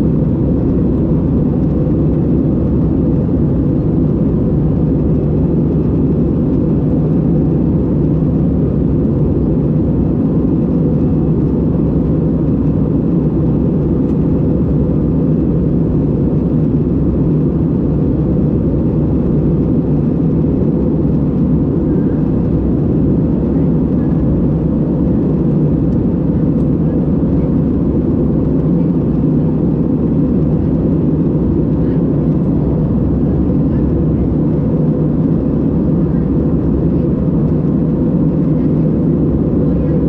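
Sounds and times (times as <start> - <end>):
airliner cabin engine rumble: 0.0 - 40.0.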